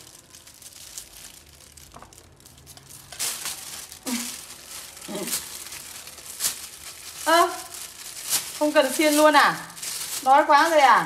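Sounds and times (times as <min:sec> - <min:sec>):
plastic glove crinkling: 0:00.0 - 0:11.0.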